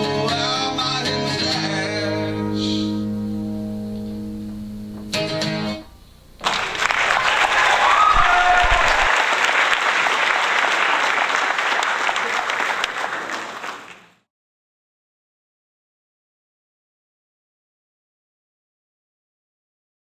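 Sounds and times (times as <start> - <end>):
acoustic guitar chord ringing: 0.2 - 6.0
applause: 6.4 - 14.3.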